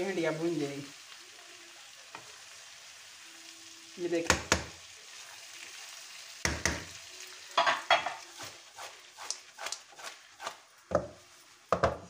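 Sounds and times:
food sizzling in a wok: 0:00.0 - 0:12.0
wooden spatula stirring: 0:08.0 - 0:12.0.

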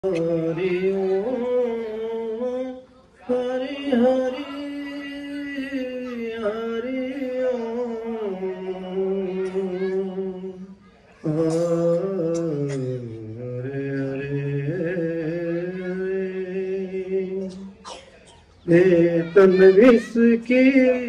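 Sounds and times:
man singing: 0:00.0 - 0:17.9, 0:18.6 - 0:21.0.

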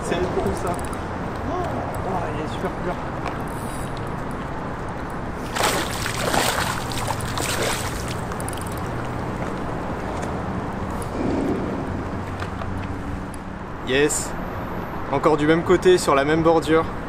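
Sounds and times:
fish splashing in water: 0:05.4 - 0:08.7
steady low hum: 0:10.9 - 0:13.6.

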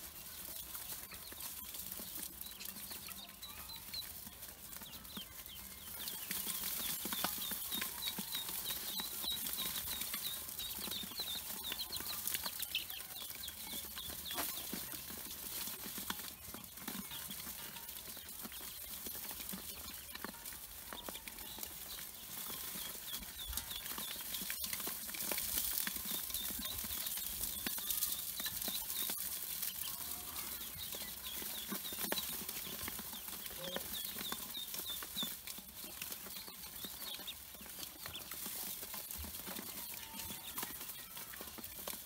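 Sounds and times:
ducklings peeping: 0:00.0 - 0:42.0.

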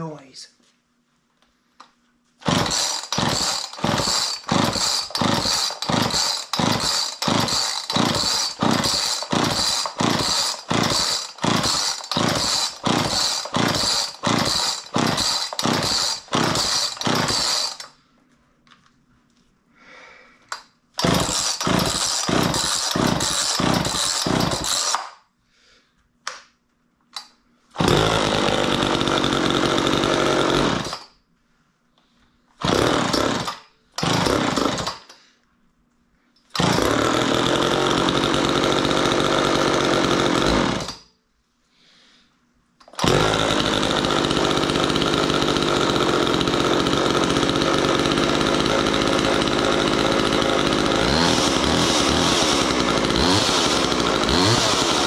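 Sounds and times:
chainsaw engine running: 0:02.4 - 0:17.9, 0:21.0 - 0:25.0, 0:27.8 - 0:31.0, 0:32.6 - 0:35.0, 0:36.6 - 0:40.9, 0:43.0 - 0:55.0.

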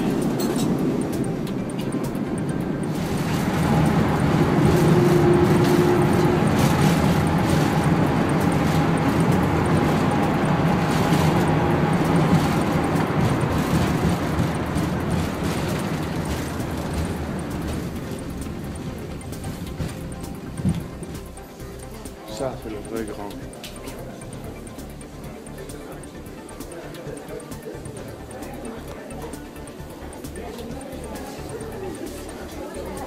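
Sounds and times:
jet engines at high thrust: 0:00.0 - 0:20.0.

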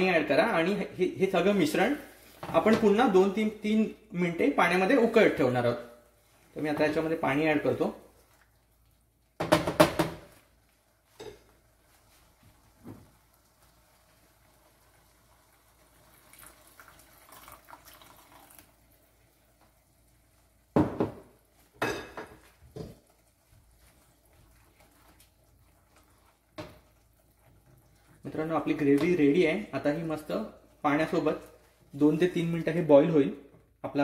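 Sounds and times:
water pouring into a pan: 0:11.7 - 0:20.8, 0:22.5 - 0:29.7.

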